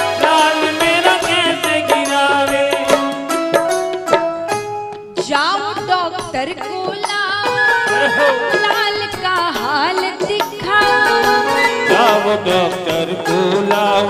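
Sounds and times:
instrumental accompaniment: 0.0s - 14.0s
woman singing: 5.2s - 12.5s.

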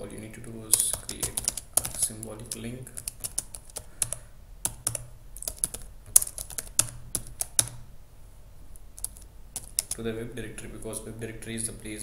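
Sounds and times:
typing on computer keyboard: 0.7s - 7.8s, 9.0s - 10.0s.

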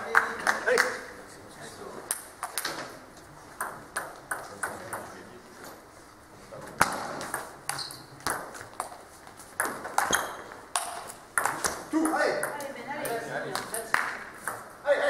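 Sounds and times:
table tennis ball pinging: 3.6s - 5.2s, 9.6s - 12.8s.

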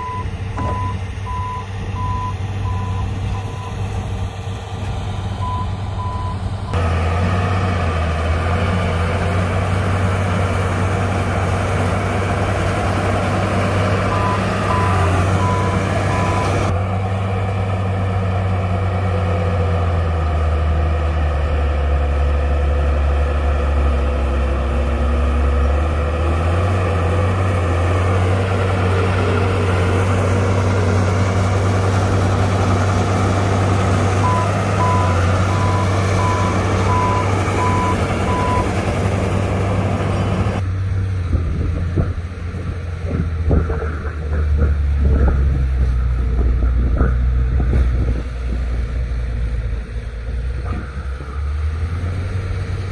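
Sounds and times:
reversing alarm beeping: 0.0s - 3.8s, 14.1s - 16.7s, 34.2s - 38.7s
diesel earthmoving machine running: 0.0s - 52.9s.

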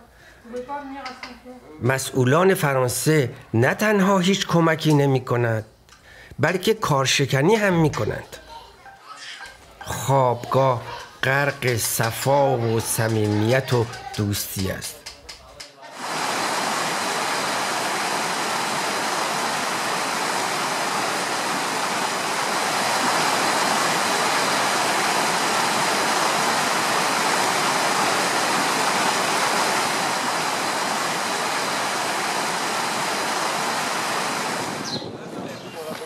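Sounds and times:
mountain stream rushing: 15.9s - 35.0s.

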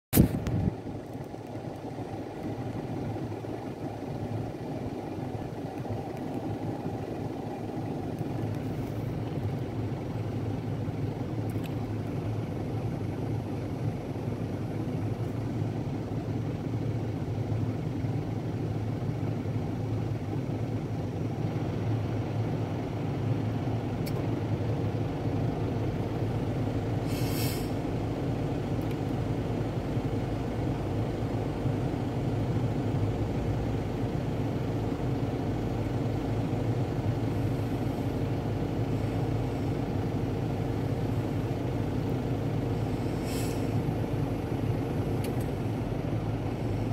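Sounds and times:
low mechanical hum: 0.2s - 46.9s
short hiss: 27.0s - 27.8s, 43.0s - 43.8s.

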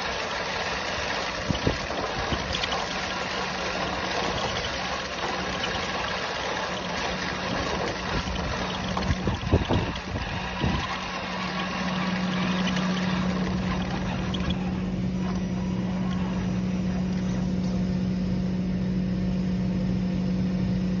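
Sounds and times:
toy truck motor humming: 0.0s - 18.0s
road noise: 8.1s - 18.2s.

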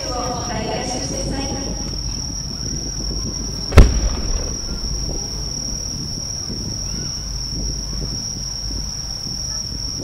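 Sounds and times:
crickets trilling: 0.0s - 10.0s
low outdoor rumble: 3.6s - 7.4s.

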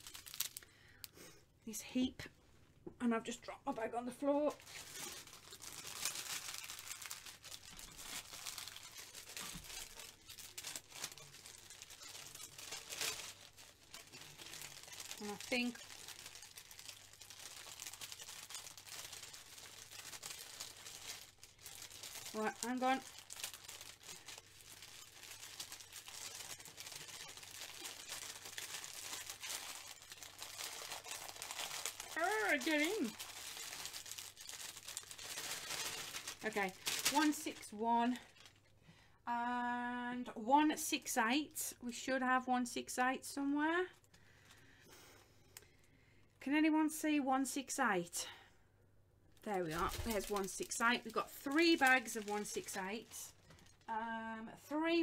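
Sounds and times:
plastic bags rustling: 0.0s - 0.7s, 4.5s - 38.7s, 49.4s - 53.9s.

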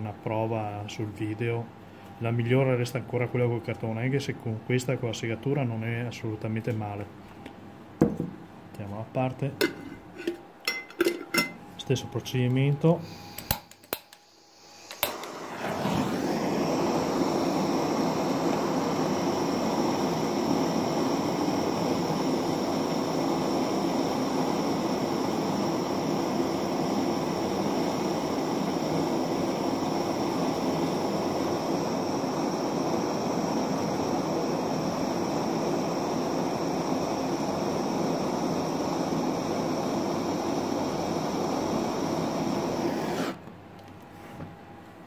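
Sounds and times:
blowtorch ignition click: 12.4s - 43.6s
blowtorch flame hissing: 12.9s - 43.5s.

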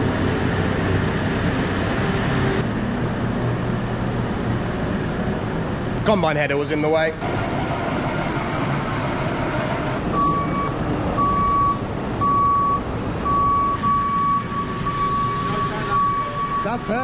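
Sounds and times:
diesel engine running: 0.0s - 17.0s
reversing alarm beeping: 8.7s - 17.0s.

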